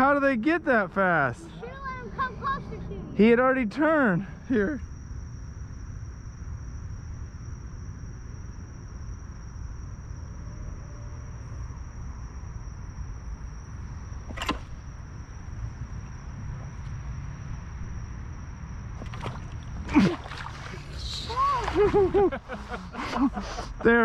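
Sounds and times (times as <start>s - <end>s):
night insects droning: 0.0s - 24.0s.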